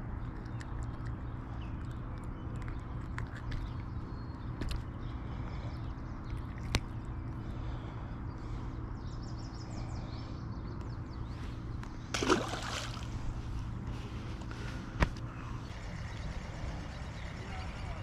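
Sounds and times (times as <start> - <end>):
water splash: 12.1 - 13.1.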